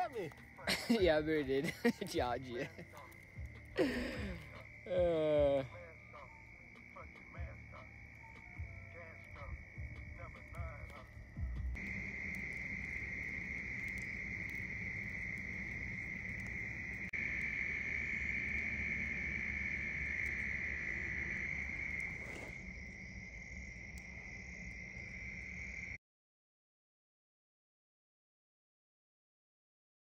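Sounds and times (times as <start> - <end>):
frogs calling: 0.0 - 26.0
insects ringing: 0.0 - 26.0.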